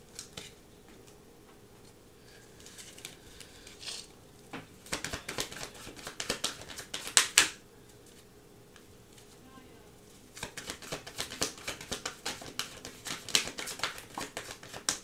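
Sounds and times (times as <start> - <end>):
cards rustling: 4.8 - 7.4, 10.2 - 15.0.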